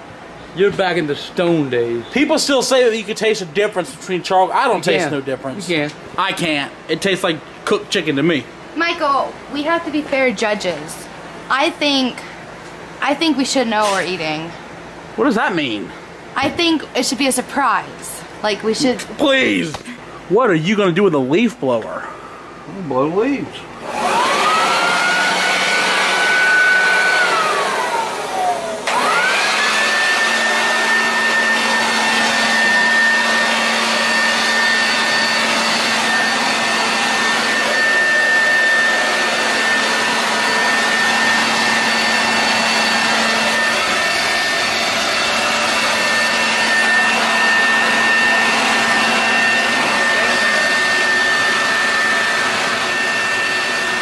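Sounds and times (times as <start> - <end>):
electric leaf blower whining: 23.8 - 54.0.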